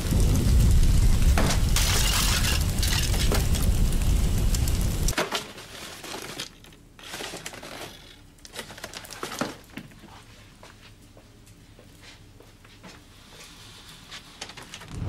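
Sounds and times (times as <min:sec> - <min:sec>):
large fire crackling: 0:00.0 - 0:05.2, 0:13.8 - 0:15.0.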